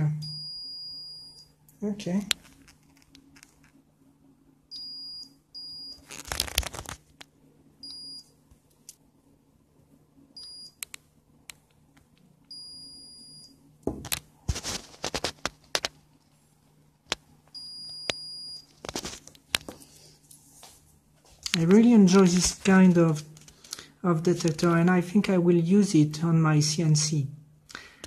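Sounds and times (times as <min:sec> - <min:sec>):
multimeter buzzer beeping: 0:00.2 - 0:01.5, 0:04.7 - 0:06.0.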